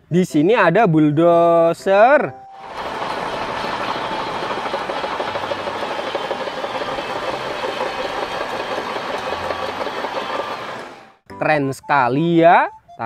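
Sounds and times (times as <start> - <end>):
diesel engine running: 2.6 - 11.2
steel tracks clattering: 2.6 - 11.2.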